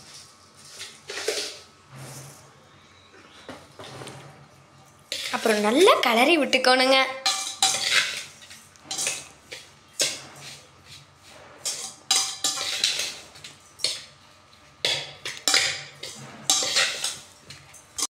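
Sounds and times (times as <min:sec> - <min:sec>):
metal spoon scraping bowl: 0:00.6 - 0:02.6, 0:05.1 - 0:06.1, 0:07.2 - 0:14.2, 0:14.8 - 0:18.0.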